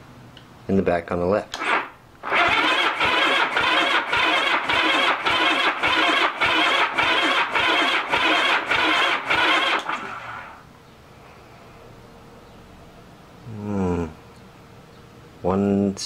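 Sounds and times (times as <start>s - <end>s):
engine cranking on electric starter: 1.5s - 10.6s.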